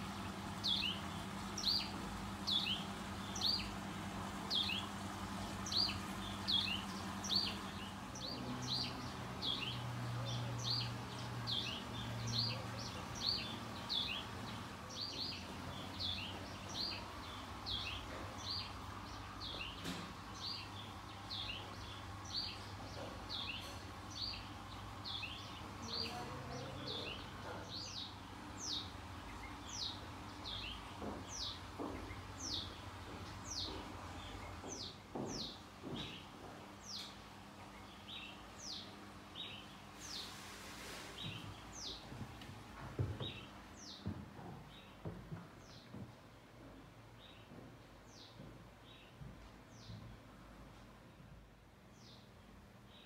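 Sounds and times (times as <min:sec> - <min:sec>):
bird chirping: 0:00.6 - 0:03.8, 0:04.5 - 0:04.9, 0:05.6 - 0:40.3.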